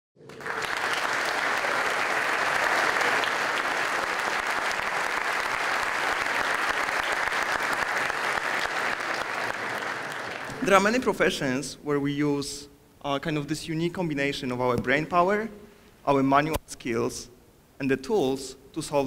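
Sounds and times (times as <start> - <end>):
audience applauding: 0.2 - 10.8.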